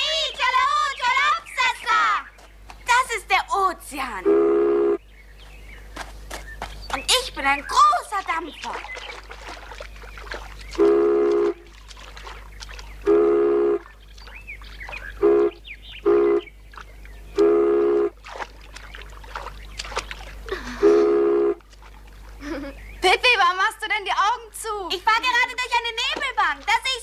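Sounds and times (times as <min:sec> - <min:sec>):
girl imitating a ship horn: 0:20.5 - 0:21.6.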